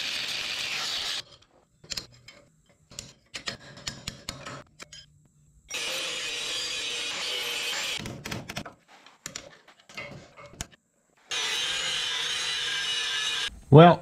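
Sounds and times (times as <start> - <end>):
angle grinder grinding steel: 11.3 - 13.5.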